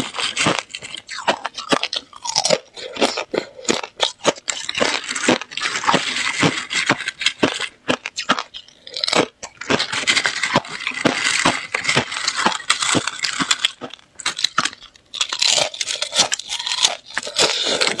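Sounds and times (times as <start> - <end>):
ice crunched while eaten: 0.0 - 18.0
ice crackling and snapping: 9.1 - 18.0.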